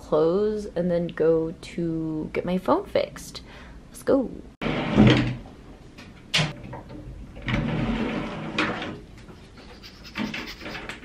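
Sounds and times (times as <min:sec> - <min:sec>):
wooden sliding door rolling: 0:04.6 - 0:05.5, 0:06.3 - 0:09.2.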